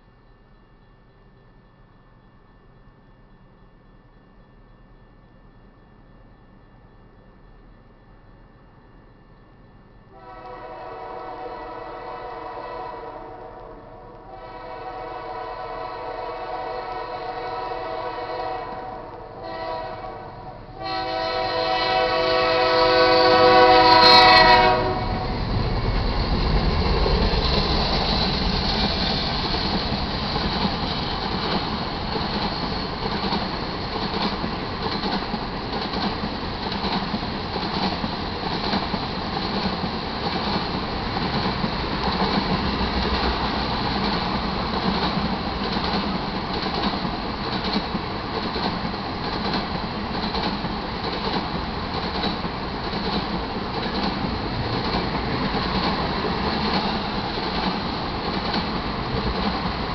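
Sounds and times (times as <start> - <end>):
train cars rumbling: 0.0 - 59.9
diesel locomotive horn: 10.1 - 25.5
train wheel clatter: 21.1 - 59.9.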